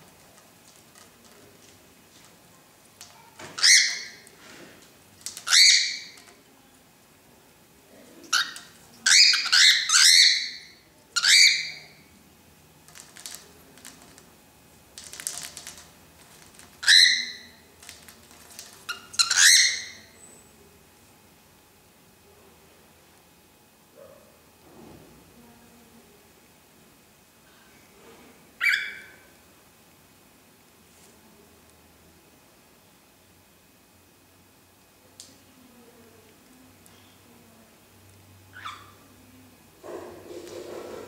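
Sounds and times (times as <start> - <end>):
cockatiel squawking: 3.6 - 4.2, 5.4 - 6.2, 8.3 - 11.9, 16.8 - 17.5, 18.9 - 20.1, 28.6 - 29.2, 38.6 - 39.0.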